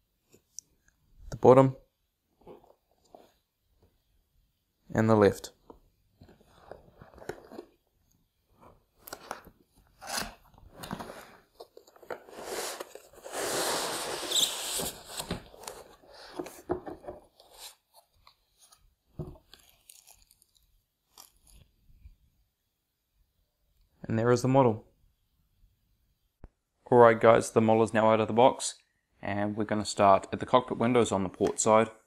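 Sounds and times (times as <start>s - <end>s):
cardboard and foam scraping: 10.0s - 16.4s.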